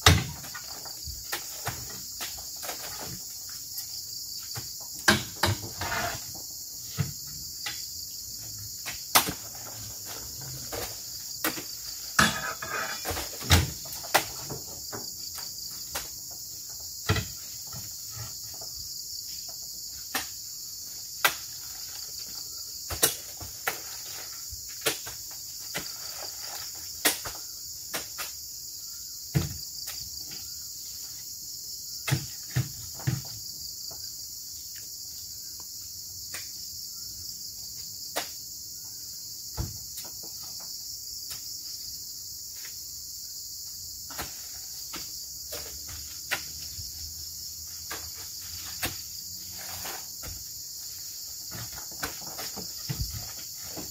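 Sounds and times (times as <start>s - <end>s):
fruit bunches thudding into truck bed: 0.0s - 3.2s, 4.6s - 6.3s, 8.9s - 16.2s, 29.3s - 29.6s, 32.0s - 33.4s, 51.4s - 53.9s.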